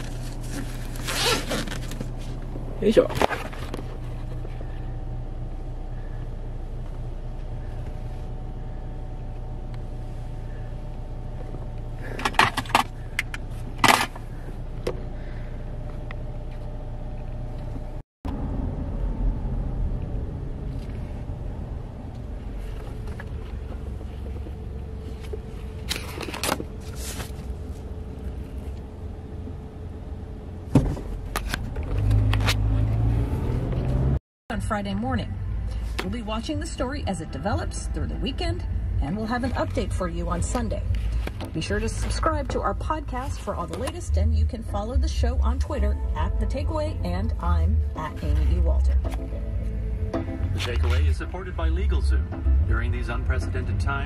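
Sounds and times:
car engine humming: 0.0 - 54.0
road rumble: 0.0 - 54.0.

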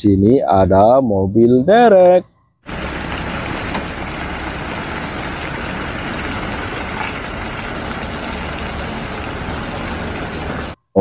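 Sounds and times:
diesel engine running: 2.7 - 10.8.

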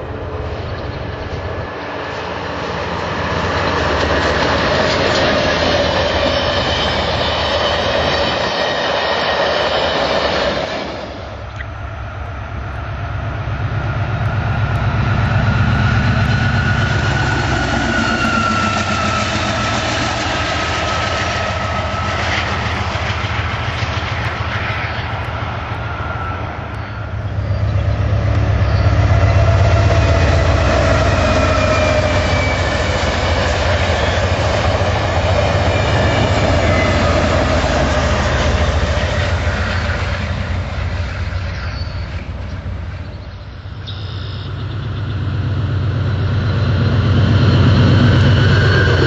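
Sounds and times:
wheels clickety-clack: 0.0 - 12.9, 13.5 - 49.0
train wheels rushing on rails: 0.0 - 49.0
diesel engine hum: 11.0 - 49.0.

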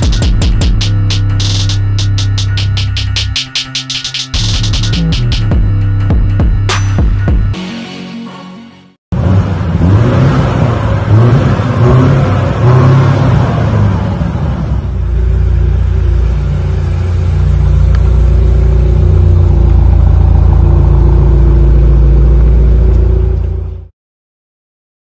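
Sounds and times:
car exhaust revving and idling: 0.0 - 3.4, 9.1 - 23.9.

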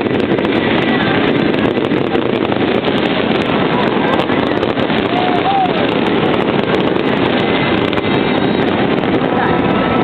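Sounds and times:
fireworks barrage: 0.0 - 10.0.

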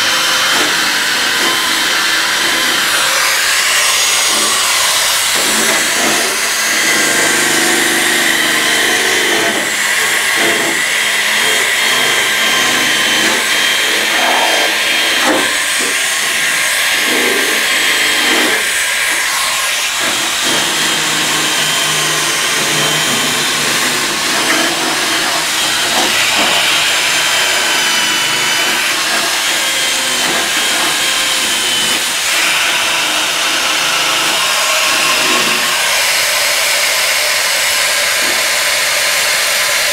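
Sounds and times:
electric power tool whining: 0.0 - 39.9.

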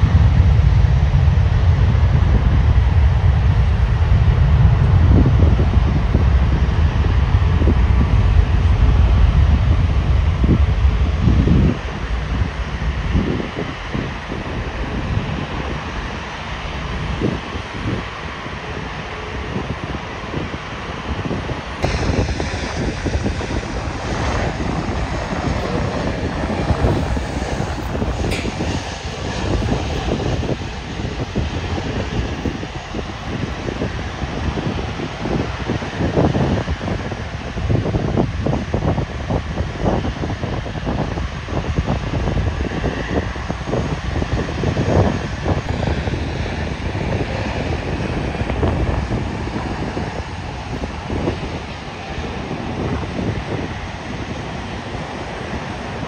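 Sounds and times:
jet engines rumbling: 0.0 - 56.0
wind buffeting microphone: 0.0 - 56.0.

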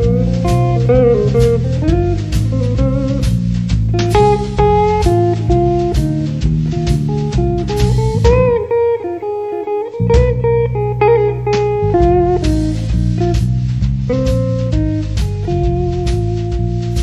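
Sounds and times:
bass guitar: 0.0 - 17.0
blues guitar notes: 0.0 - 17.0
brushed drums: 0.0 - 17.0.

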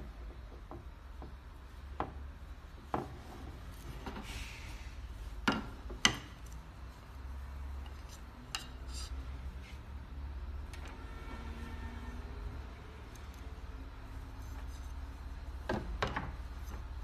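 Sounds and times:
wooden dowels clicking and knocking: 5.4 - 6.7, 7.8 - 9.2, 14.3 - 17.0
cord rubbing on wood: 7.9 - 9.8.

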